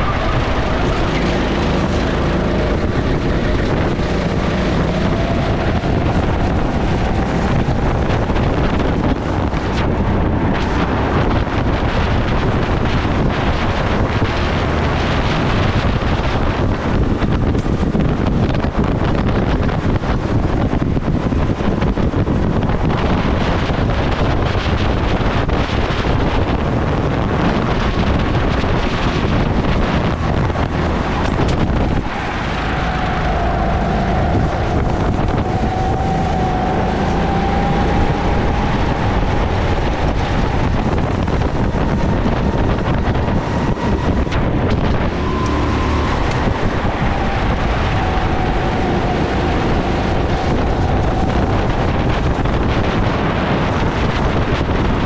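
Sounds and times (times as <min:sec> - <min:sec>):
thin rising whine: 0:00.0 - 0:16.8, 0:27.4 - 0:54.2
kart engine running: 0:00.0 - 0:55.0
wind noise on microphone: 0:00.0 - 0:55.0.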